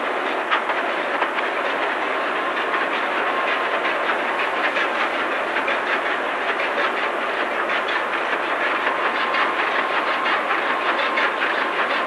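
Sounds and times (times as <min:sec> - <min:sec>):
marine diesel engine clattering: 0:00.0 - 0:12.0.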